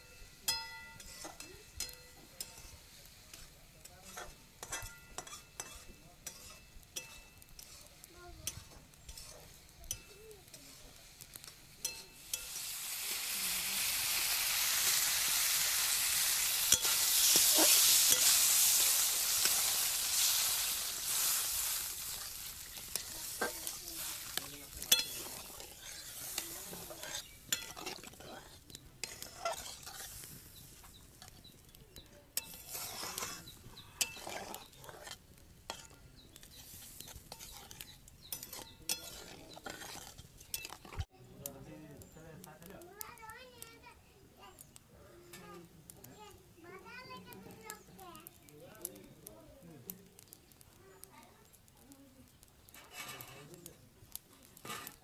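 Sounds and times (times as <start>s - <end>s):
metal spatula scraping a wok: 0.0s - 41.1s, 52.6s - 53.8s, 54.4s - 55.0s
frying spices sizzling: 0.0s - 55.0s.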